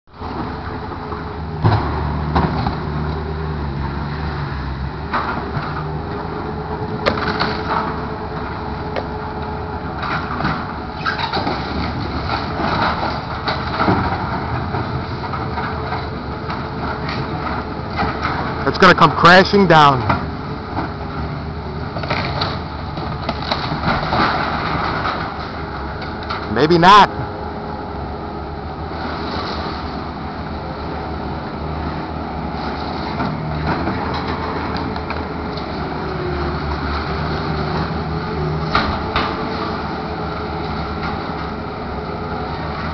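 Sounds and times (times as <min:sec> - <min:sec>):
excavator engine running: 0:00.1 - 0:42.9
loader engine running: 0:00.1 - 0:42.9
debris breaking and crunching: 0:22.0 - 0:25.6.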